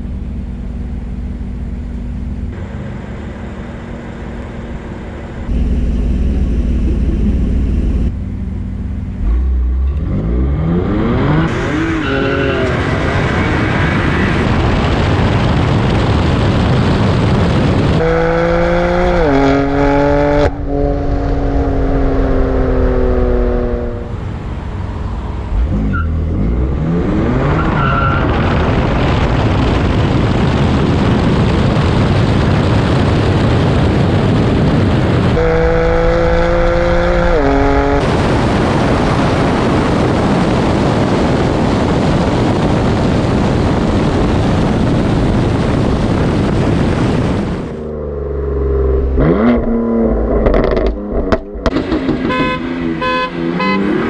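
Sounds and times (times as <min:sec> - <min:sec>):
car engine idling: 0:00.0 - 0:10.0
car accelerating and revving: 0:08.9 - 0:54.0.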